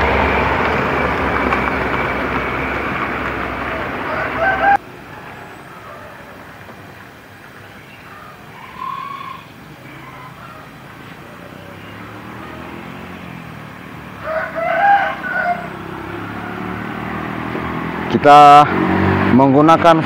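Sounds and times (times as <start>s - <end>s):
low engine hum: 0.0s - 19.6s
rooster crowing: 3.7s - 6.9s, 8.0s - 12.6s, 14.1s - 17.2s.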